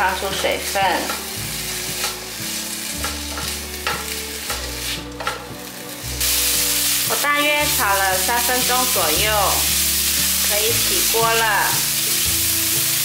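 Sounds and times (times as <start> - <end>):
vegetables sizzling: 0.0 - 13.0
spatula scraping a wok: 0.3 - 5.6.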